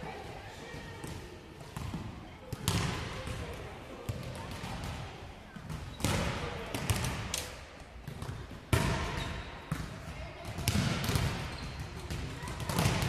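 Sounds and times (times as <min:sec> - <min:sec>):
volleyball smacks echoing: 0:05.7 - 0:11.5.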